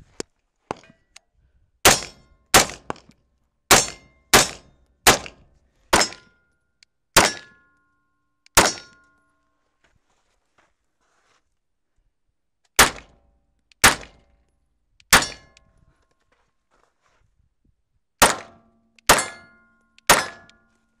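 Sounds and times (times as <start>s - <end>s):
pistol shots: 1.8s - 3.0s, 3.7s - 5.4s, 7.2s - 7.6s, 8.6s - 9.0s, 12.8s - 13.1s, 13.8s - 14.2s, 18.2s - 19.5s, 20.1s - 20.6s.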